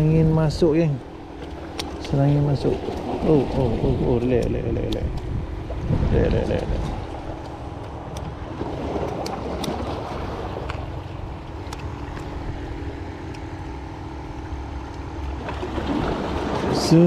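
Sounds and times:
low rumble: 0.0s - 16.9s
faint light clicks: 13.2s - 13.5s.

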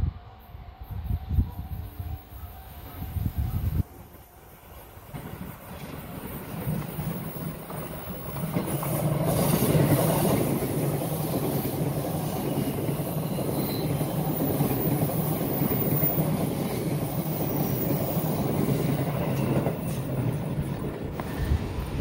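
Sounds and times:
train wheels rumbling on rails: 0.8s - 22.0s.

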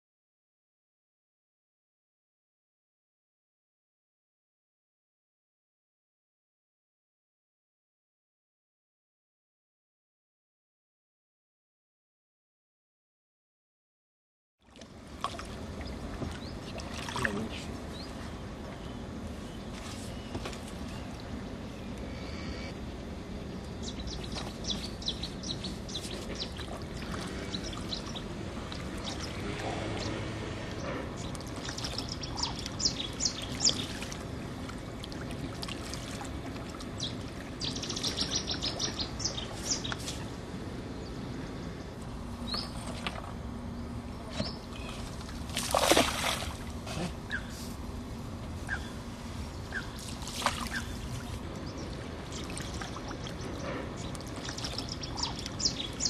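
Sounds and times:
water rushing: 15.1s - 18.8s, 24.5s - 39.8s, 45.2s - 46.8s
small birds chirping: 23.6s - 34.1s, 36.9s - 40.4s, 41.8s - 43.0s, 43.7s - 45.1s, 48.6s - 56.0s.

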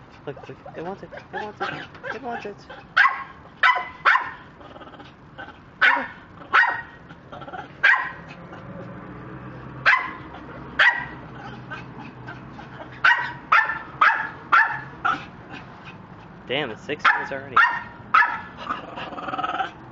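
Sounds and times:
sharp dog-like barks: 3.0s - 4.4s, 5.8s - 7.0s, 7.8s - 8.2s, 9.8s - 10.2s, 10.8s - 11.2s, 13.0s - 15.2s, 17.0s - 18.5s.

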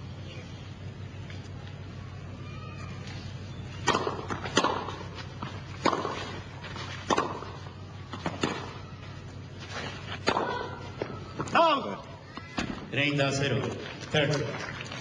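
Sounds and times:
steady low hum: 0.0s - 15.0s
tennis balls hit with rackets: 3.7s - 9.3s, 9.9s - 12.9s.

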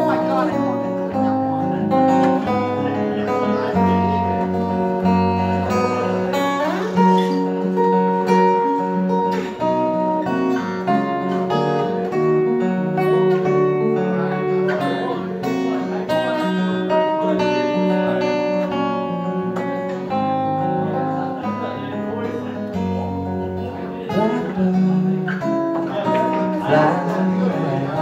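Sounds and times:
acoustic guitar picking: 0.0s - 28.0s.

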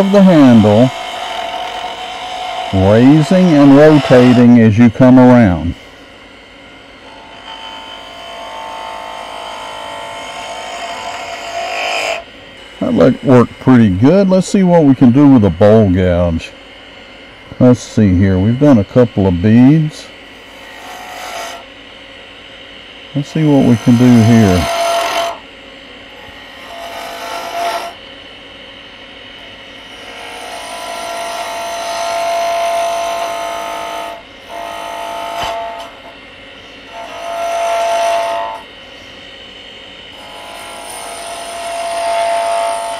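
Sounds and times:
gouge cutting wood on lathe: 0.0s - 5.7s, 7.1s - 16.5s, 17.6s - 21.6s, 23.2s - 25.4s, 26.2s - 28.0s, 29.9s - 35.9s, 36.9s - 38.6s, 40.2s - 42.9s
gouge cutting wood hissing: 0.0s - 5.8s, 23.2s - 25.4s
wood lathe running: 0.0s - 28.0s, 29.8s - 42.9s.

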